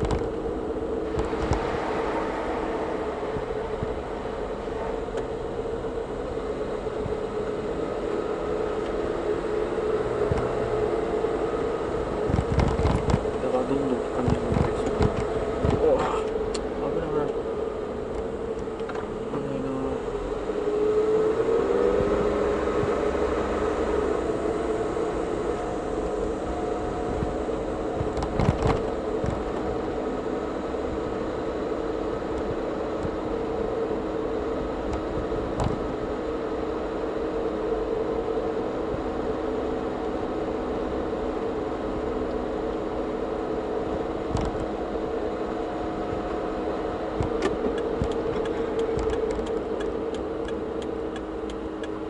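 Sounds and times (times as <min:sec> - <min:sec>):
car engine and tyre hum: 0:00.0 - 0:52.0.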